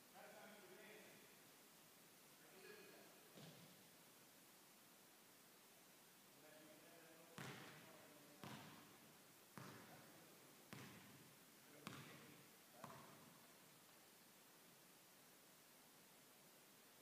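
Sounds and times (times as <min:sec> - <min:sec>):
basketball bouncing on hardwood floor: 0:03.4 - 0:03.6, 0:07.4 - 0:07.8, 0:08.4 - 0:08.8, 0:09.6 - 0:09.9, 0:10.7 - 0:11.2, 0:11.8 - 0:12.2, 0:12.8 - 0:13.3.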